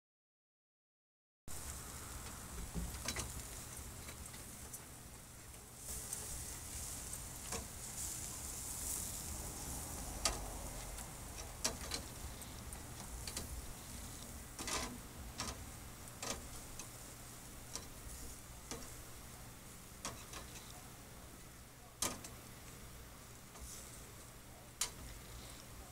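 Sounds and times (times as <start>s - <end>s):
food sizzling on a grill: 1.5s - 25.9s
metal tongs clicking on grate: 10.2s - 13.6s, 14.2s - 17.0s, 17.7s - 19.0s, 20.0s - 20.8s, 22.0s - 22.8s, 24.8s - 25.1s.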